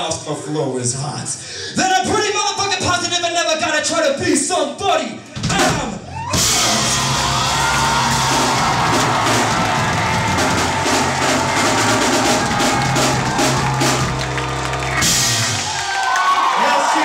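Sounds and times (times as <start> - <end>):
drum kit hits: 5.4 - 15.9
live band playing hip-hop: 5.4 - 15.9
sustained bass line: 6.4 - 15.8.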